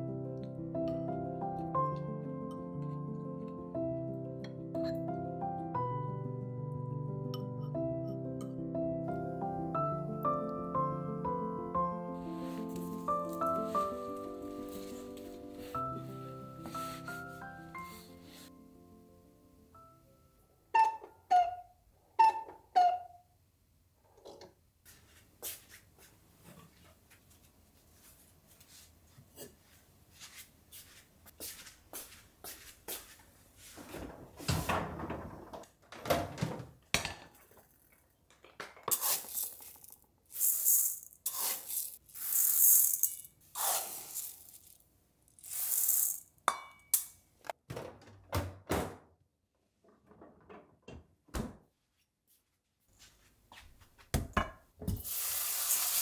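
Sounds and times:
rice grains pouring into bowl: 0:38.9 - 0:44.8, 0:45.4 - 0:46.3, 0:55.1 - 0:56.0.

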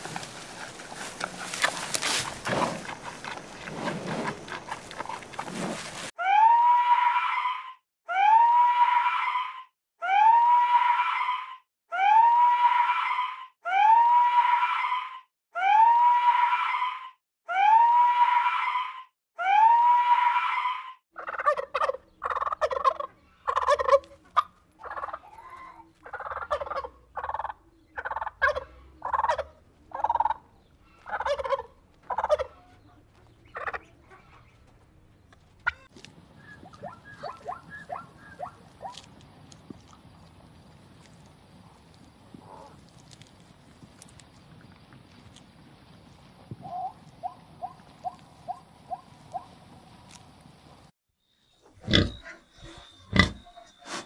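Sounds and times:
panda chewing bamboo: 0:00.0 - 0:06.1, 0:35.9 - 0:46.2
turkey gobbling: 0:21.2 - 0:25.2, 0:26.0 - 0:30.4, 0:31.0 - 0:32.6, 0:33.4 - 0:33.9, 0:35.6 - 0:39.1, 0:46.6 - 0:49.5.

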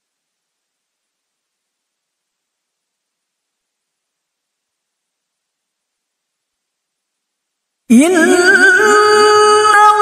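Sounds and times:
woman reciting melodically: 0:07.9 - 0:10.0.

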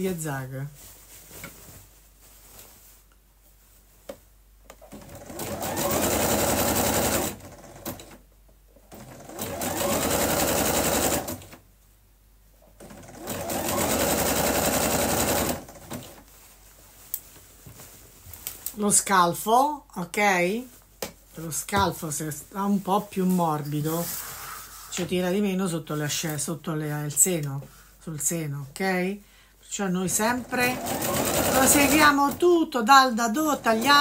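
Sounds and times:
sewing machine stitching: 0:04.8 - 0:08.2, 0:08.9 - 0:11.6, 0:12.8 - 0:16.2, 0:30.1 - 0:32.4.

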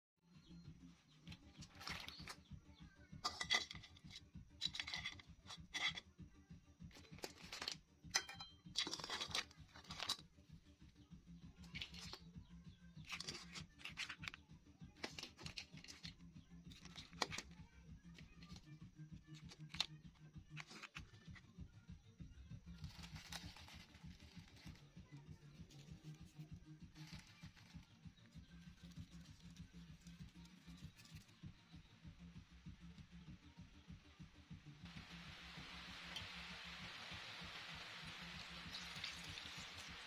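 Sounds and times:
crab shells clattering in metal wok: 0:03.2 - 0:06.0, 0:06.9 - 0:10.3, 0:13.0 - 0:14.4, 0:38.4 - 0:40.0.

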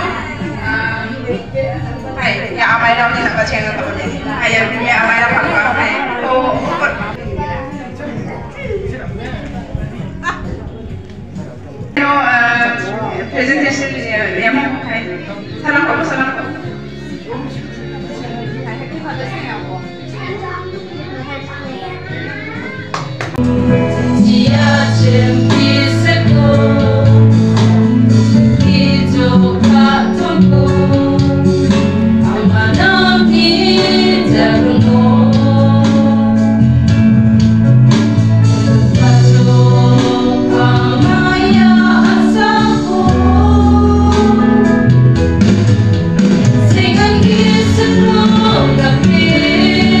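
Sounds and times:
women singing a hymn: 0:23.7 - 0:37.1, 0:38.5 - 0:45.2, 0:46.4 - 0:50.0.

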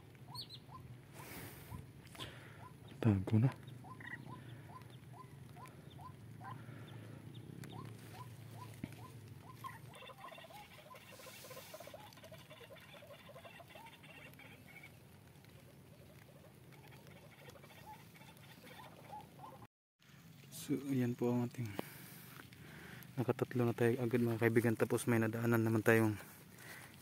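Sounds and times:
chattering bird calls: 0:00.2 - 0:01.4, 0:02.2 - 0:19.6
squeaky bird chirps: 0:00.3 - 0:00.8.

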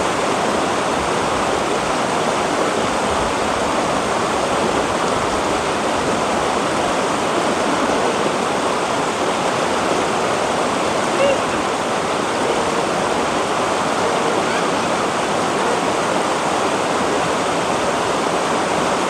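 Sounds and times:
river rushing over rocks: 0:00.0 - 0:19.0.

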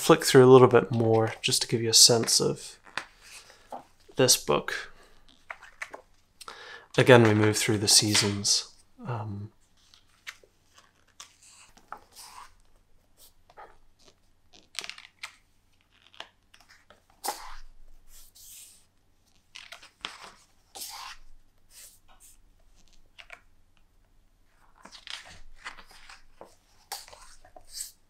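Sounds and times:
book pages turning: 0:00.8 - 0:04.2, 0:05.2 - 0:06.2, 0:09.6 - 0:23.9, 0:24.5 - 0:28.0.

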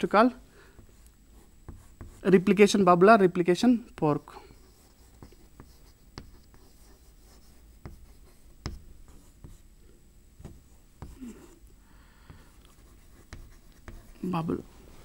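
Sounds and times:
chalk tapping on chalkboard: 0:00.8 - 0:02.3, 0:04.7 - 0:09.6, 0:10.4 - 0:11.4, 0:12.2 - 0:14.3
chalk scratching: 0:00.8 - 0:02.4, 0:04.5 - 0:09.6, 0:12.3 - 0:14.6.

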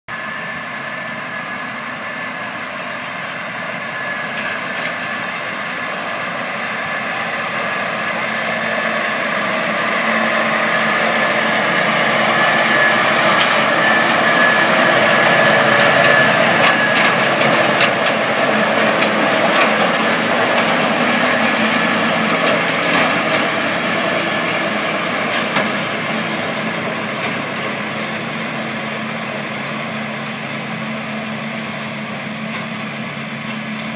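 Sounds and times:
baler working noise: 0:00.1 - 0:33.9
tractor diesel engine under load: 0:00.1 - 0:33.9.

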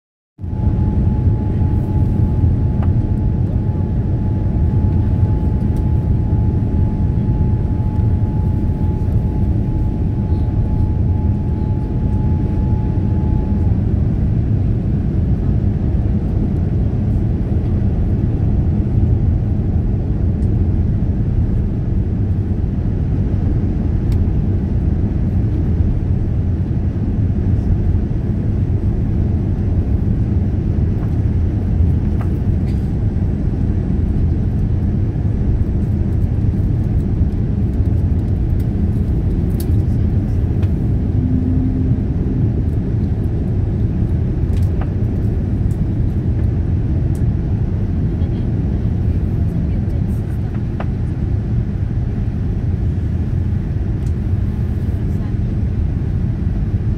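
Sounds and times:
airliner cabin engine roar: 0:00.4 - 0:56.9.

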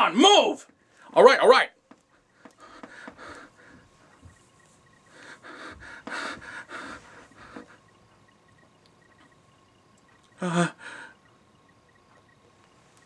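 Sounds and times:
person breathing hard: 0:02.3 - 0:04.1, 0:05.0 - 0:07.9, 0:10.4 - 0:11.2.

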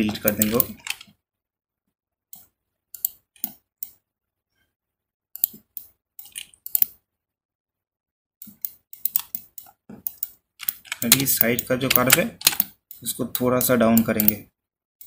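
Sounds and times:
mouse and keyboard clicking: 0:00.0 - 0:01.1, 0:02.4 - 0:04.0, 0:05.4 - 0:07.0, 0:08.4 - 0:14.4.

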